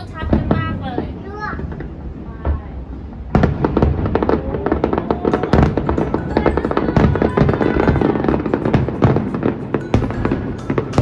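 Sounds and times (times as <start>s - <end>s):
fireworks bangs and crackles: 0.0s - 11.0s
music playing: 6.0s - 11.0s.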